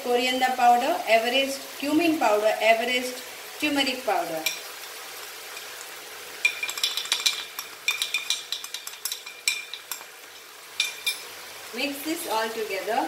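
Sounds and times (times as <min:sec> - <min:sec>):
faint sizzle of frying: 0:00.0 - 0:13.0
metal spoon scraping a pan: 0:06.4 - 0:11.3.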